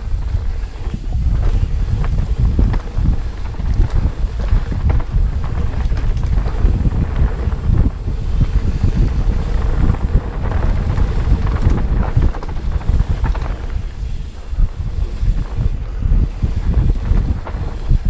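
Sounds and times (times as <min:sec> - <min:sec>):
bike knocks and rattles: 0:00.0 - 0:18.0
wind buffeting microphone: 0:00.0 - 0:18.0.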